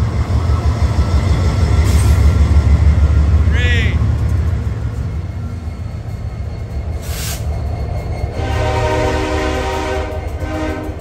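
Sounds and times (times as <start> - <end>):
diesel locomotive engine rumble: 0.0 - 11.0
multi-tone train horn: 8.3 - 11.0.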